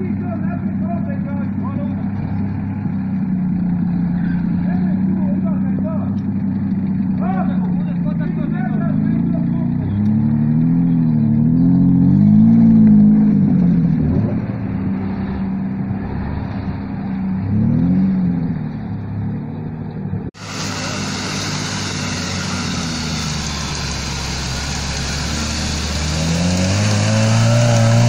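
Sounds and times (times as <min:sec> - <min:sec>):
off-road engine revving: 0:00.0 - 0:28.0
tyres hissing through mud: 0:20.4 - 0:28.0.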